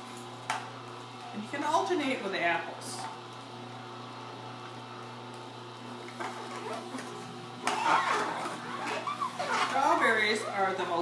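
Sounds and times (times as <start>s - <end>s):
juicer motor humming: 2.2s - 11.0s
fruit grinding in juicer: 3.0s - 11.0s.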